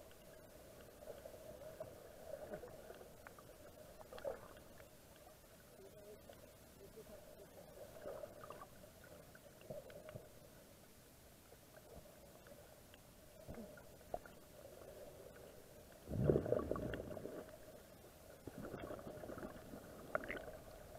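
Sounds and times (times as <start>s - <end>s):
muffled underwater gurgling: 16.0s - 17.7s
low rumbling water surge: 16.0s - 17.8s.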